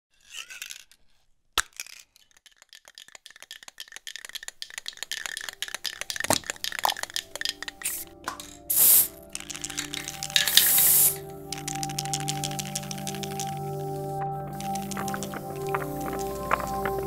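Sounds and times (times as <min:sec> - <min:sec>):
spray can ball rattling: 0:00.4 - 0:00.9, 0:01.6 - 0:17.0
spray hiss: 0:07.8 - 0:17.0.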